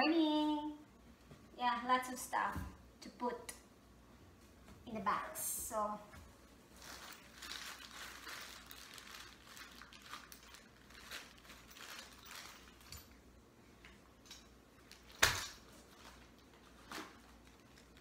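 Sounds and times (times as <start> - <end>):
clothing and goods rustling: 5.7 - 13.3, 14.2 - 18.0.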